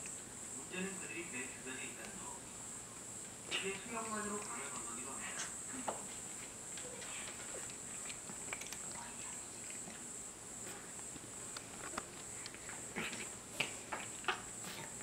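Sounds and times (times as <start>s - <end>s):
high-pitched hiss: 0.0s - 7.7s
cat crunching dry kibble: 7.2s - 10.0s.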